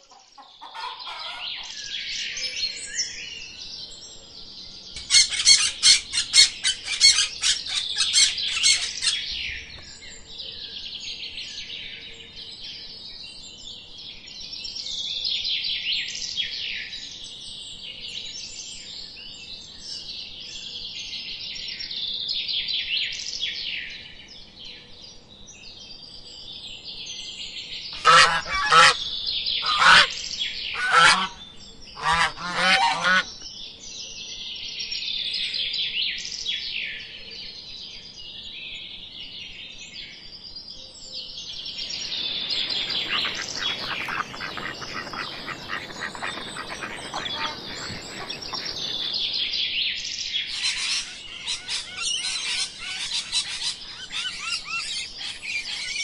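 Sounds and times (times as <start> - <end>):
small birds twittering: 4.5 - 11.8, 41.0 - 56.0
harsh honking calls: 41.8 - 49.3.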